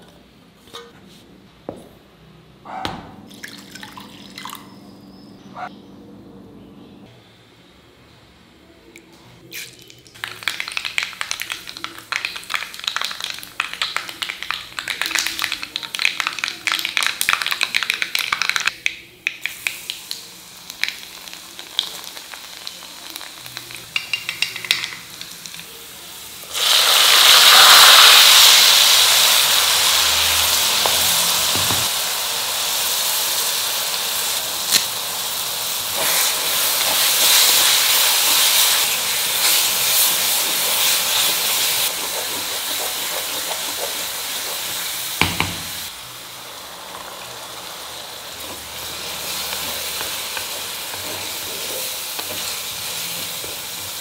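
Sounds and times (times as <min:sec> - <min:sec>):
mustard seeds popping in oil: 0:09.5 - 0:25.7
onions sizzling in oil: 0:10.3 - 0:54.0.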